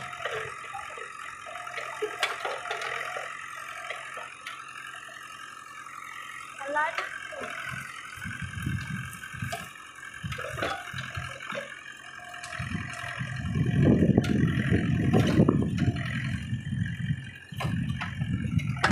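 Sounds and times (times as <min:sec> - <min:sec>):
backhoe digging into brush: 0:00.0 - 0:18.9
tractor engine running: 0:00.0 - 0:18.9
rough low rumble: 0:12.6 - 0:18.9.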